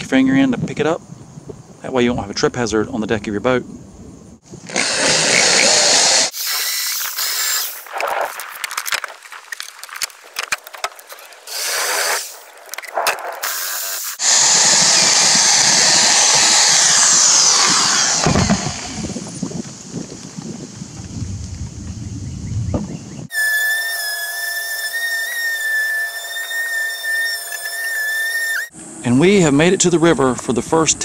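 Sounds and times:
power drill boring through wood: 4.6 - 7.8, 11.5 - 12.4, 13.4 - 19.2, 23.3 - 28.7.

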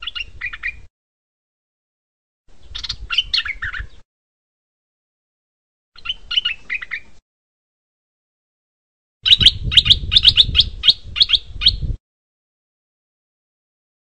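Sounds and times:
bird song chirpy notes: 0.0 - 0.9, 2.6 - 4.0, 6.0 - 7.2, 9.2 - 12.0.

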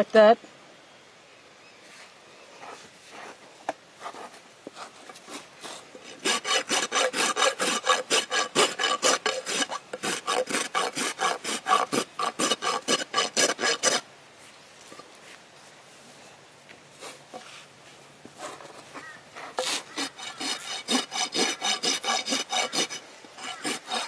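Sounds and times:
hoof rasp filing hoof: 4.1 - 14.0, 18.4 - 24.0.

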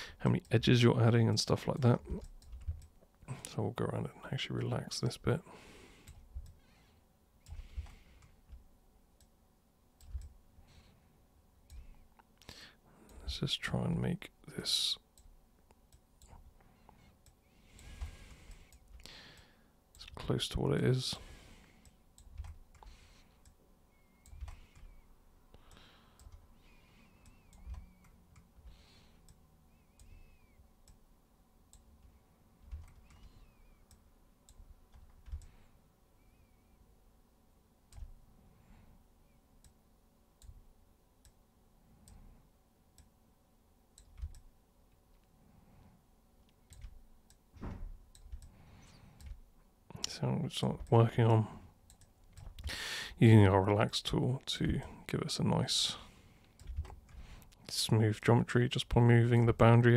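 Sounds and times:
computer mouse and keyboard clicking: 1.8 - 3.0, 10.0 - 10.4, 21.8 - 23.6, 24.2 - 25.1, 25.7 - 31.0, 31.7 - 35.6, 44.0 - 44.5, 46.5 - 47.4, 48.1 - 49.4, 51.9 - 52.7, 56.4 - 57.6.

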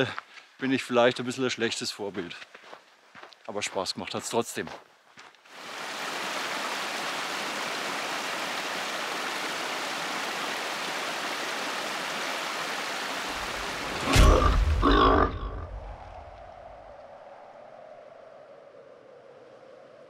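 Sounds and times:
stream trickling over rocks: 5.5 - 13.9.

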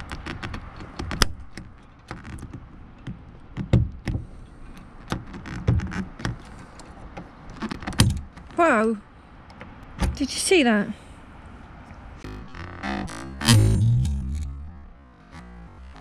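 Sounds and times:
heavy knocks on a pin: 3.1 - 4.3.

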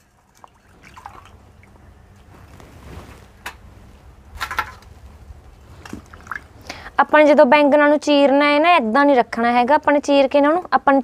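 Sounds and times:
water splashing in a bowl: 0.0 - 1.8, 5.8 - 6.7.

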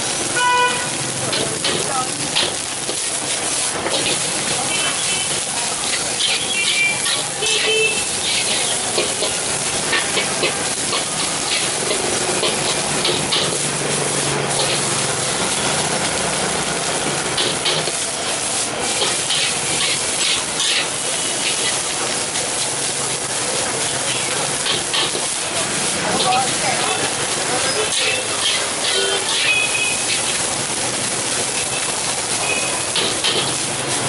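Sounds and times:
rice sizzling in a wok: 0.0 - 34.0
metal spatula scraping pan: 19.0 - 21.9, 27.6 - 30.4.

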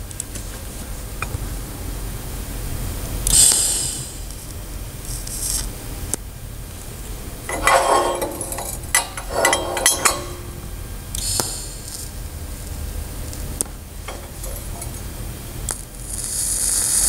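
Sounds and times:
metal pipes clinking on steel table: 7.5 - 10.7, 14.0 - 15.2
hissing welding: 14.0 - 17.0.

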